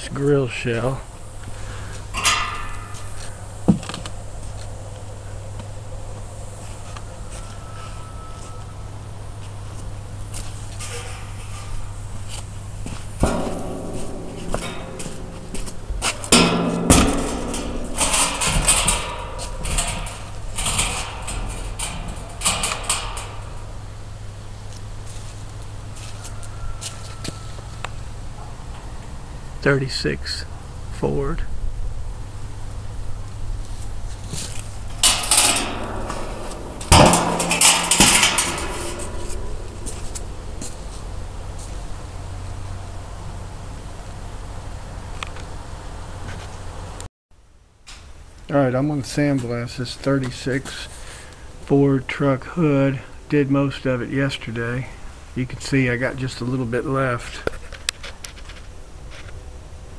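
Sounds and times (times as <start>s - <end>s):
steady low hum: 0.0s - 58.0s
sheet metal clanking and scraping: 1.4s - 5.3s, 9.3s - 27.8s, 34.1s - 43.5s
metal knocks with ring: 13.2s - 23.7s.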